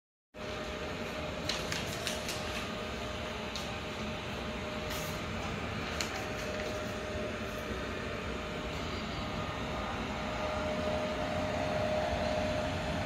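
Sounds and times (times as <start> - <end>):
machinery humming: 0.4 - 13.0
steady tone: 7.0 - 13.0.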